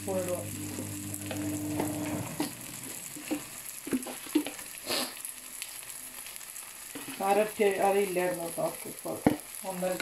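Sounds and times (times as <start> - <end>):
food sizzling in oil: 0.0 - 10.0
spoon knocking and scraping pan: 1.2 - 4.6.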